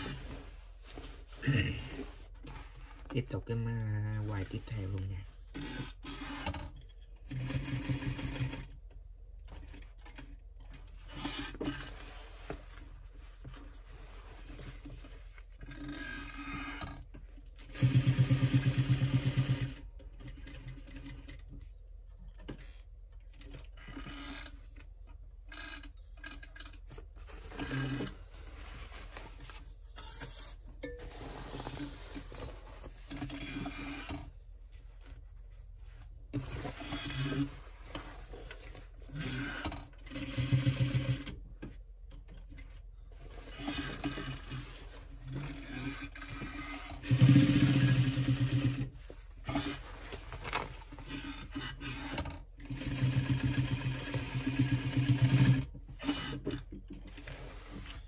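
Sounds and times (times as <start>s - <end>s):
sewing machine stitching: 5.5s - 8.8s, 15.6s - 21.5s, 25.5s - 28.2s, 33.1s - 34.3s, 36.4s - 37.6s, 38.6s - 41.4s, 43.3s - 49.9s, 51.0s - 58.0s.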